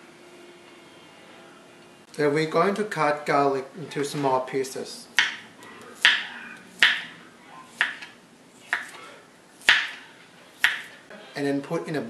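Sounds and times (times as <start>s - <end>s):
knife striking cutting board: 5.2s - 5.4s, 6.0s - 7.2s, 7.8s - 8.1s, 9.6s - 11.0s.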